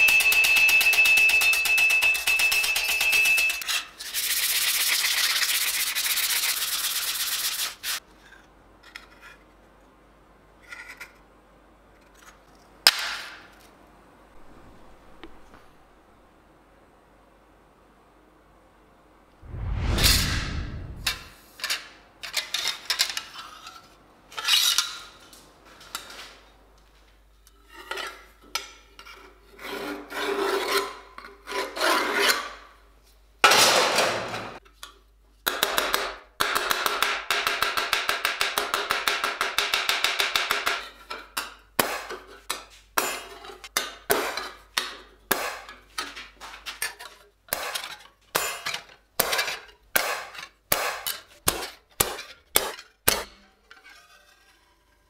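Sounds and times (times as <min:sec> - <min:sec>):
file rasping on steel: 0:50.9 - 0:55.0.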